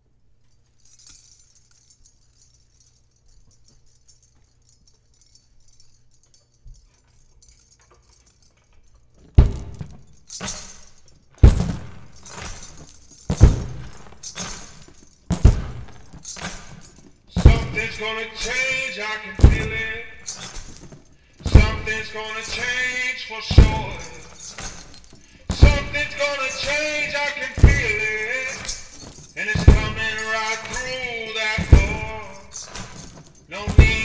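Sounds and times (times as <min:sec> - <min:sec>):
jingling percussion: 0:00.5 - 0:34.0
steady drum beat: 0:09.4 - 0:09.8, 0:11.4 - 0:12.2, 0:13.3 - 0:14.1, 0:15.3 - 0:16.1, 0:17.4 - 0:18.1, 0:19.4 - 0:20.2, 0:21.5 - 0:22.6, 0:23.5 - 0:24.4, 0:25.5 - 0:28.6, 0:29.4 - 0:32.6, 0:33.6 - 0:34.0.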